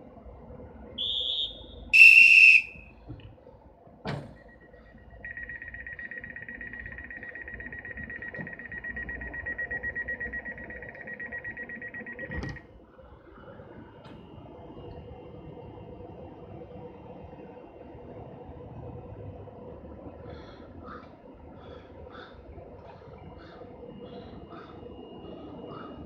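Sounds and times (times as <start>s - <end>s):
railway whistle blasts: 1.0s - 3.0s
train door shutting thud: 4.0s - 4.4s
rapidly pulsing warning beep: 4.3s - 12.8s, 23.6s - 26.0s.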